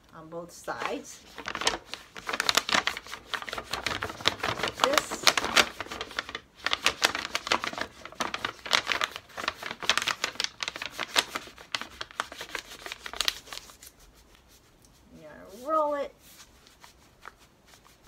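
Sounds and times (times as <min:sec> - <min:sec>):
paper bag crackling and rustling: 0:00.8 - 0:14.2.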